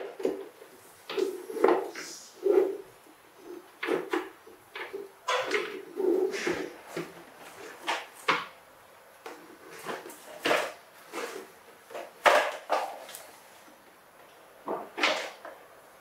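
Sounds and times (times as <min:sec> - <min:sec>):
plastic toy truck clunking on floor: 0:09.3 - 0:13.1.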